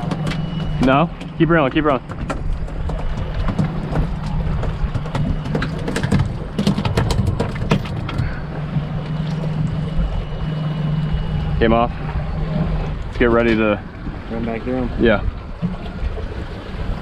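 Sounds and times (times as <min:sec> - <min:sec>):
fish flapping against deck: 0:00.0 - 0:09.2
outboard engine running: 0:00.0 - 0:17.0
wind and water noise: 0:00.0 - 0:17.0.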